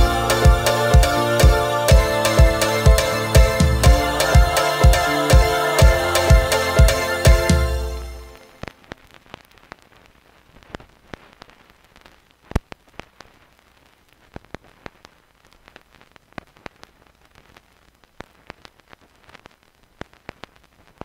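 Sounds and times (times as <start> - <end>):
faint crackle with clicks and pops: 8.4 - 21.0.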